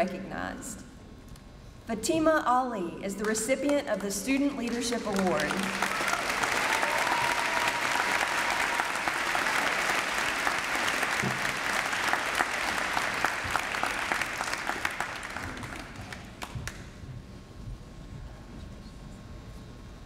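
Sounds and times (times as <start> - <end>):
audience applauding: 4.6 - 16.8.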